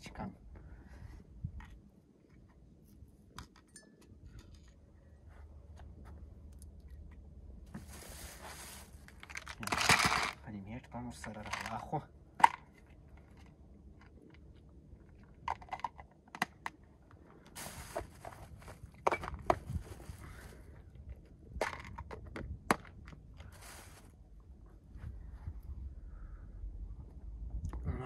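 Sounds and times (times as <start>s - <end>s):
plastic crinkling and rustling: 7.8s - 10.4s, 17.5s - 20.6s.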